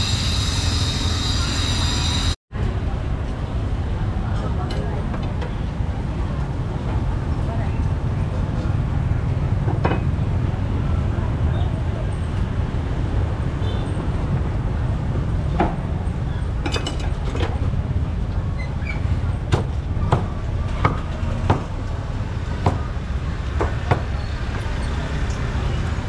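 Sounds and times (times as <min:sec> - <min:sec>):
sharp knocks and clacks: 0:19.5 - 0:21.9.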